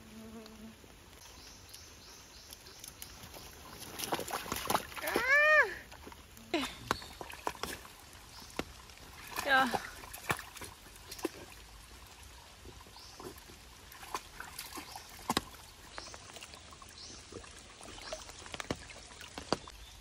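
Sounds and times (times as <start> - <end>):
stream trickling: 0.0 - 20.0
dog splashing in water: 2.9 - 6.2, 6.9 - 11.6, 13.2 - 15.7.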